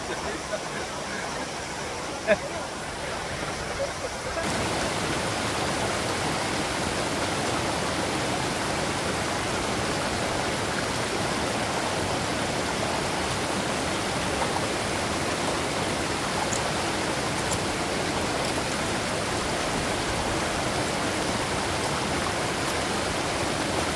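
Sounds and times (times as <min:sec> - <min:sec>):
stream rushing over rocks: 0:00.0 - 0:23.9.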